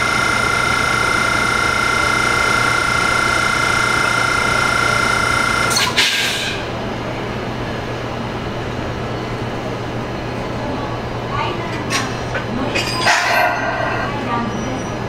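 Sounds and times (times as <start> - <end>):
low hum: 0.0 - 5.9
locomotive high-pitched whine: 0.0 - 9.6.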